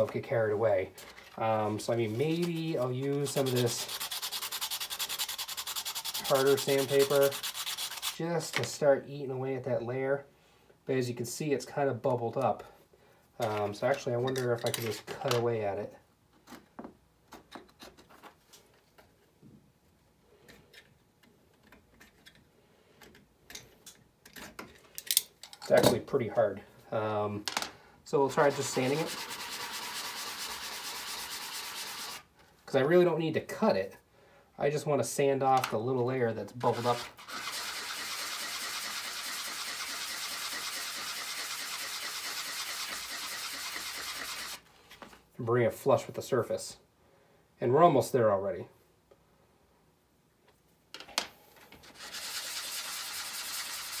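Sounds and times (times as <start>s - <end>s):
craft knife scraping plastic: 2.1s - 8.2s, 36.6s - 37.8s
sanding block rasping on plastic: 2.1s - 8.2s, 28.4s - 32.2s, 36.6s - 44.6s, 51.8s - 54.0s.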